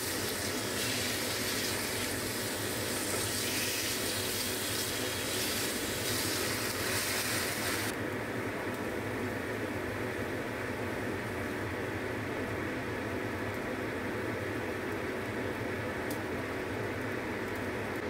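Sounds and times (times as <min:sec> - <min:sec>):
meat sizzling in frying pan: 0:00.0 - 0:07.9.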